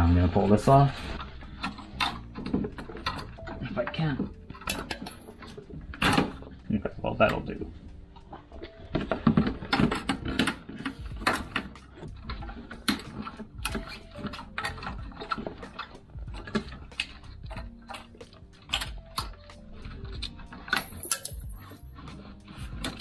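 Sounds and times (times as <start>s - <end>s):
hand tools clicking on metal: 8.9s - 23.0s.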